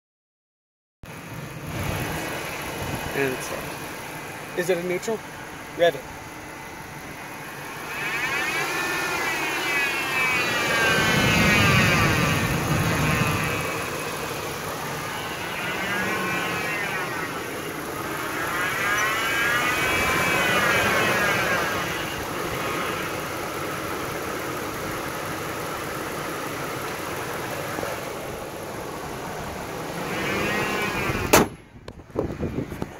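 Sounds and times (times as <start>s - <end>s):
high-pitched belt drive whine: 1.1s - 32.9s
truck engine running: 1.1s - 32.9s
sharp knock: 31.3s - 31.6s.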